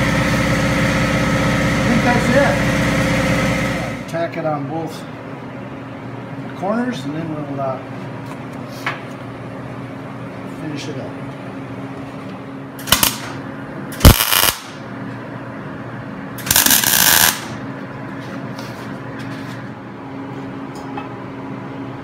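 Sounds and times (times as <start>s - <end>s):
arc welder crackling: 12.8s - 14.9s, 16.4s - 17.7s.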